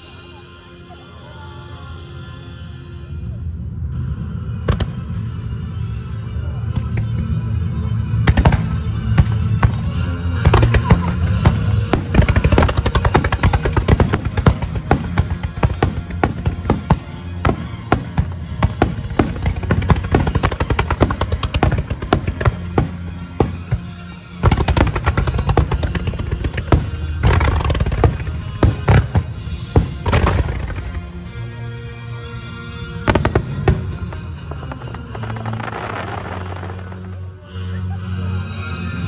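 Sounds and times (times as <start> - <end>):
music: 0.0 - 39.0
fireworks bangs and crackles: 4.7 - 5.3, 6.6 - 31.5, 32.8 - 37.4.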